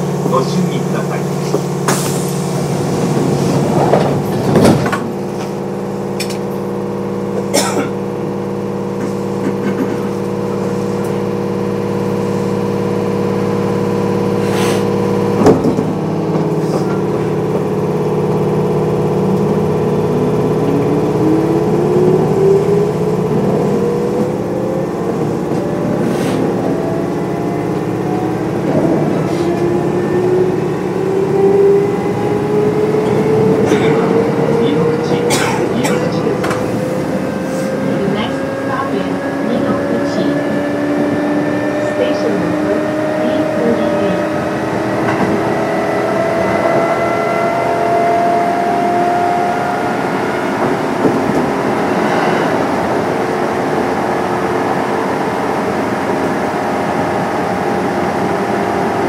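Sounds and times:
train equipment humming: 0.0 - 59.0
train doors closing thump: 1.4 - 5.6, 15.4 - 17.8
traction motor whine: 10.1 - 35.3.

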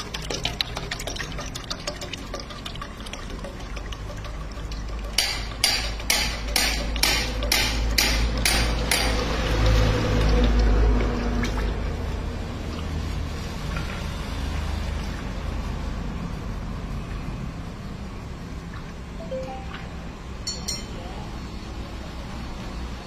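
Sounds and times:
oil press rumbling: 0.0 - 15.2
oil stream into steel pot: 0.0 - 15.2
sharp knocks: 5.2 - 9.2.

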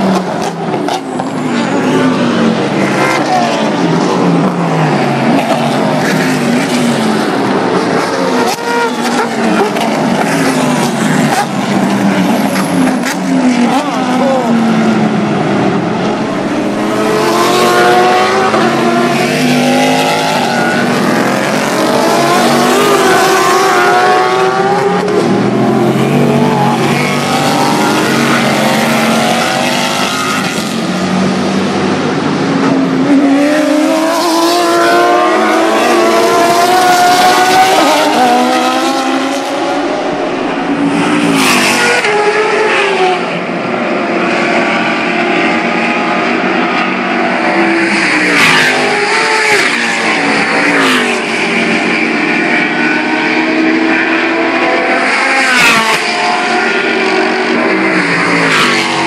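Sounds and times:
racing car engines: 0.0 - 59.0.

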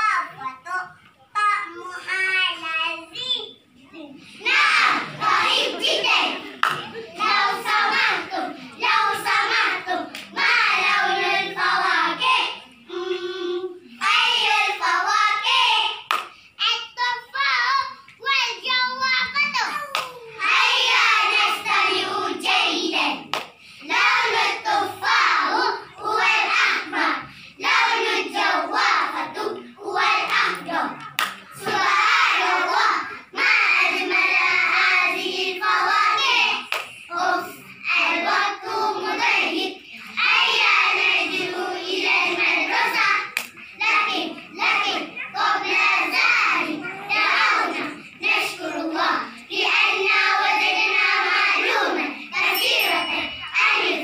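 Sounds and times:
children chanting in unison: 4.1 - 18.0, 20.2 - 54.0
hand claps: 6.6 - 6.9, 16.1 - 16.4, 19.9 - 20.2, 23.3 - 23.6, 30.3 - 31.8, 36.7 - 37.0, 43.4 - 43.6.

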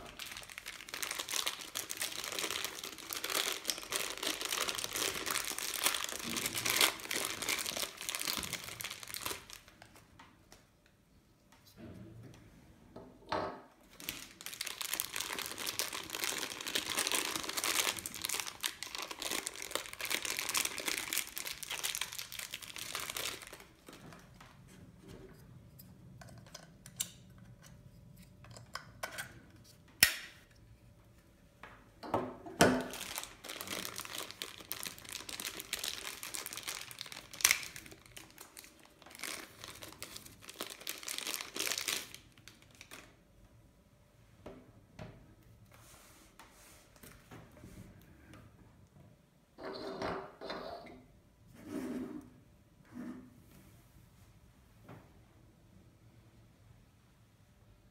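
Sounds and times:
plastic bags crinkling: 0.0 - 10.1, 13.9 - 24.5, 32.8 - 43.2.

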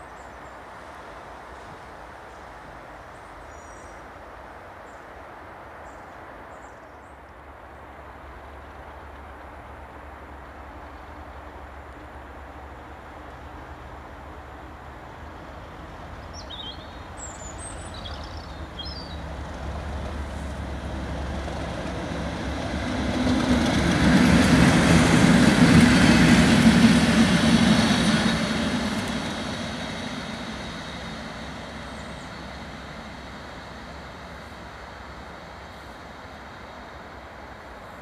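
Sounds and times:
diesel locomotive engine: 7.6 - 38.0
train wheel noise: 8.4 - 38.0.

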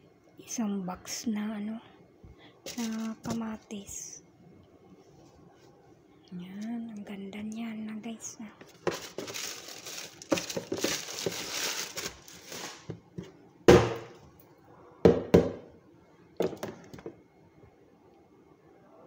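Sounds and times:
rustling of plastic tray: 2.7 - 3.7, 8.6 - 13.3
sharp knocks: 13.7 - 14.1.

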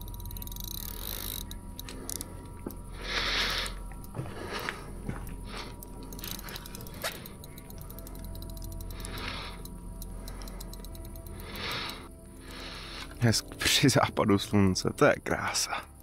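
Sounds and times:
sharp handling clicks: 0.0 - 2.9, 5.2 - 13.6.

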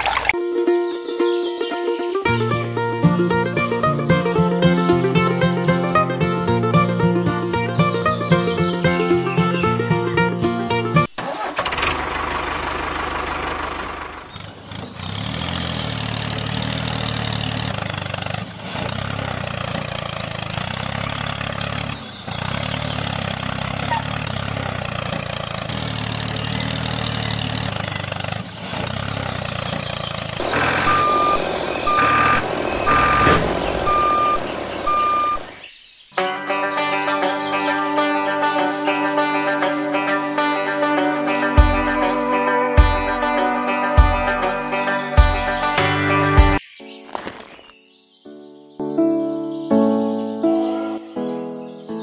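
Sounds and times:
heavy vehicle engine running: 2.3 - 35.6
reversing alarm beeping: 30.4 - 35.6.

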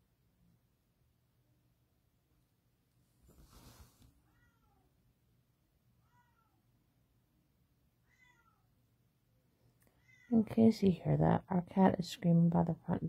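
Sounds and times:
brief rustle: 3.2 - 4.2
cat meowing: 4.3 - 4.9, 8.0 - 8.7, 10.0 - 10.3.

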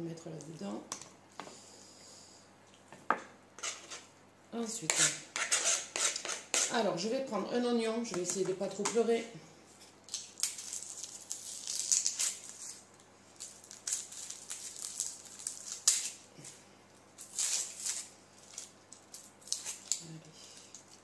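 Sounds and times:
onion skin crackling and rustling: 9.8 - 21.0.

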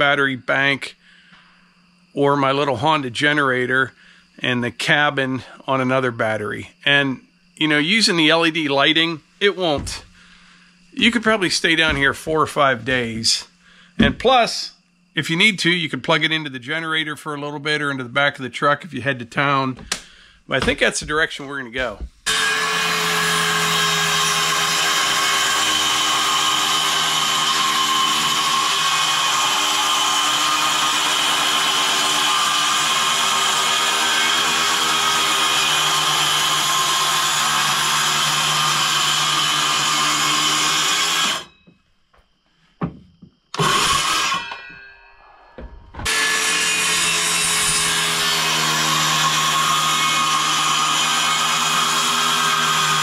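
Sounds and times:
power saw cutting wood: 9.6 - 10.1, 22.2 - 41.6, 43.5 - 44.9, 46.0 - 53.0.

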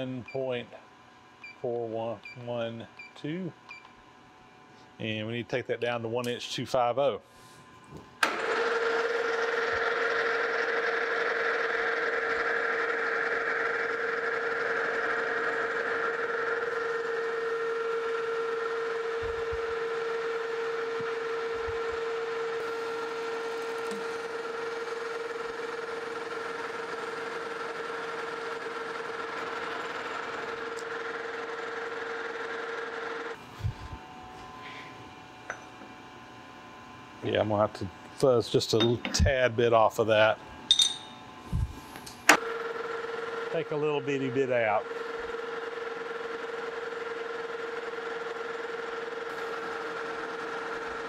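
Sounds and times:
metal lathe whining: 8.2 - 33.4.

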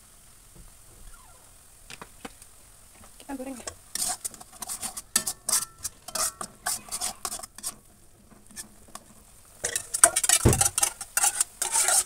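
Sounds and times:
light sizzle in oil: 0.0 - 12.0
metal spatula scraping wok: 3.5 - 12.0.

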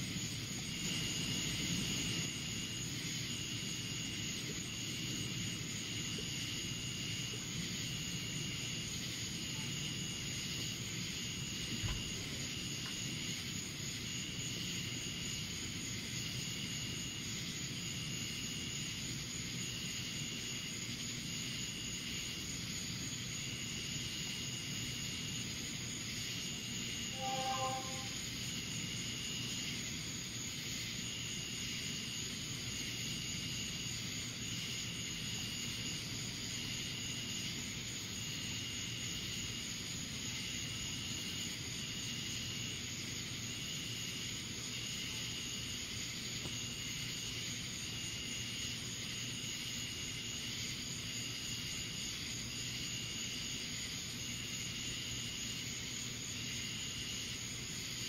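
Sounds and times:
insect pulsing call: 0.0 - 58.0
insect high trill: 26.2 - 31.5.

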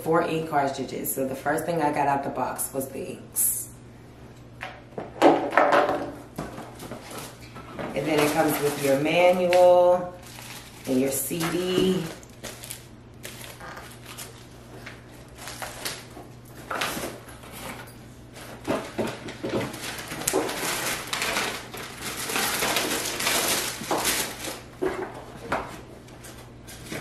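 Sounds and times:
plastic packaging and paper crinkling: 6.4 - 27.0.

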